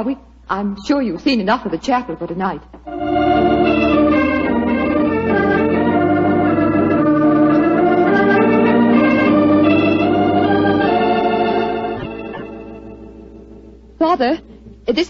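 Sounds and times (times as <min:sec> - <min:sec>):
organ playing sustained chords: 0:02.9 - 0:13.9.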